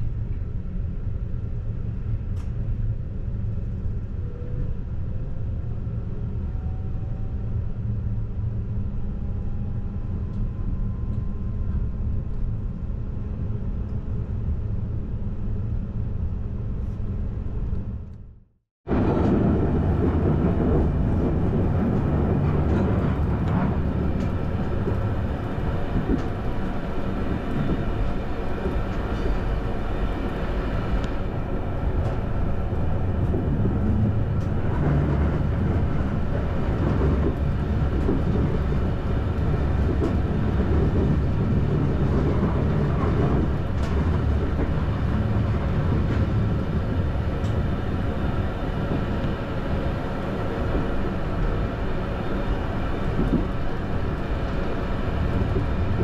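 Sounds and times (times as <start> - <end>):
train wheels rumbling: 18.9 - 56.0.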